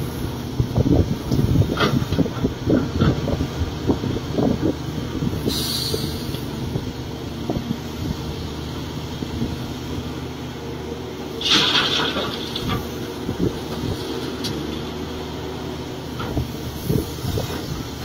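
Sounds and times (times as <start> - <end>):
excavator diesel engine running: 0.0 - 18.0
hydraulic hiss: 5.4 - 6.4.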